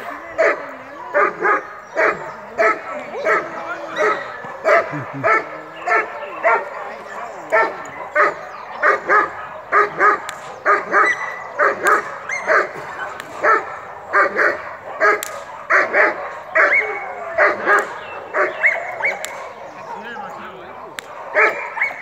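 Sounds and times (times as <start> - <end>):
dog barking sharply: 20.9 - 22.0.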